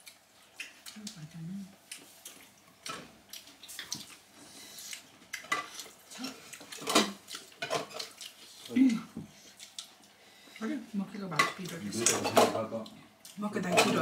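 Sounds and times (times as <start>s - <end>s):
dishes and utensils clinking: 11.3s - 12.6s, 13.6s - 14.0s.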